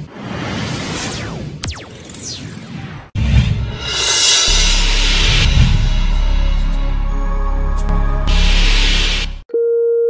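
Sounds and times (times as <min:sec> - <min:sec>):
low hits: 0:03.2 - 0:09.1
deep bass drone: 0:03.2 - 0:09.4.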